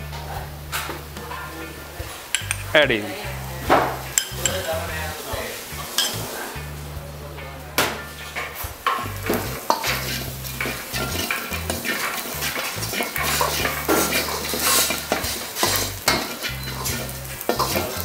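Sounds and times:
spices sizzling in a pan: 0.0 - 18.0
steel ladle scraping pan: 3.9 - 6.7, 8.0 - 18.0.

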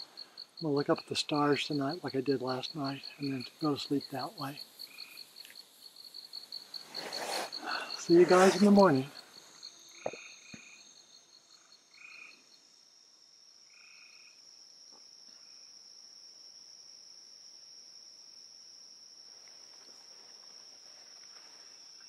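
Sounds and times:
frog calls: 0.0 - 5.7, 6.3 - 10.8, 11.4 - 12.6
high insect drone: 0.0 - 22.0
high insect trill: 0.0 - 22.0.

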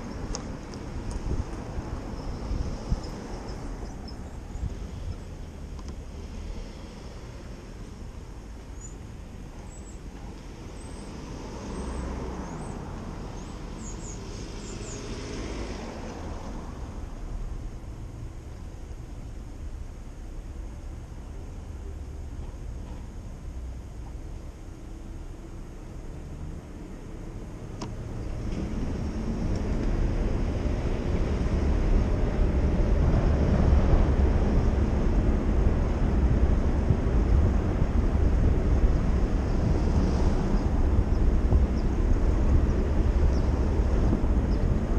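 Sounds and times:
wind buffeting microphone: 0.0 - 14.5, 28.2 - 44.9
idling and passing cars: 0.0 - 44.9
low road rumble: 0.0 - 44.9.

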